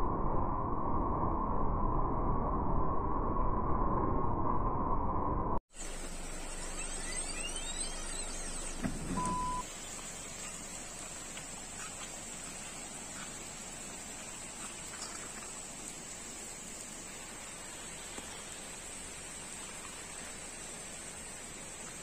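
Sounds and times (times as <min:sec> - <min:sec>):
rain on foliage and water: 0:05.7 - 0:22.0
high beep: 0:06.7 - 0:09.6.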